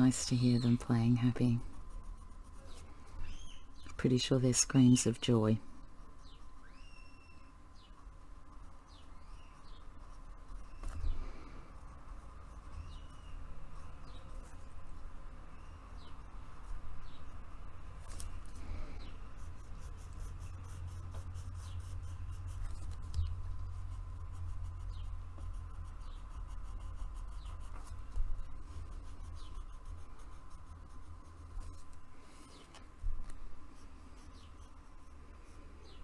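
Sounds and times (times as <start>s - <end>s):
pencil scratching on paper: 0.0s - 3.7s, 8.5s - 15.3s, 18.1s - 32.2s, 33.0s - 36.0s
steady low hum: 0.0s - 36.0s.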